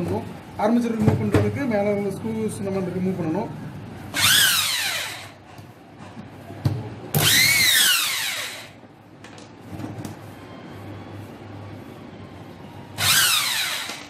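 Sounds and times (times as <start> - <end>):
electric drill whining: 4.2 - 5.4, 7.2 - 8.7, 13.0 - 14.0.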